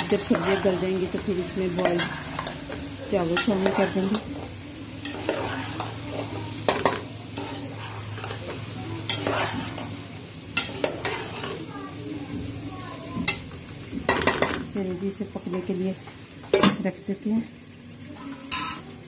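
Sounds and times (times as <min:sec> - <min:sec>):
spatula scraping and knocking pot: 0:00.0 - 0:10.0, 0:10.6 - 0:11.6
metal spatula stirring vegetables: 0:00.0 - 0:14.7
vegetables sizzling: 0:00.0 - 0:19.0.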